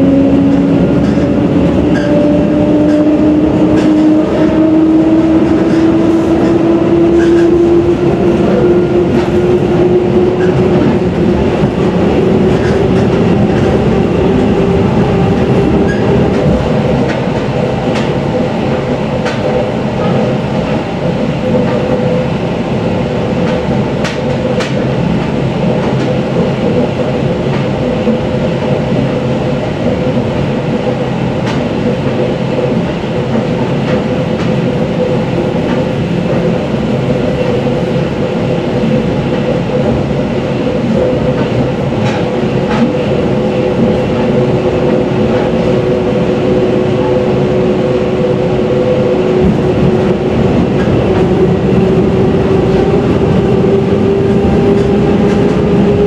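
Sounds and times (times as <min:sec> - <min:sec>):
train running rumble: 0:00.0 - 0:56.0
wheels clicking on rail joints: 0:00.4 - 0:22.1.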